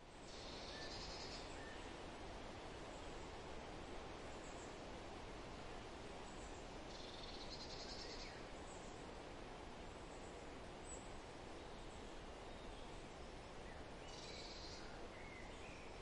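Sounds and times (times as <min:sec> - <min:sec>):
low hiss: 0:00.0 - 0:16.0.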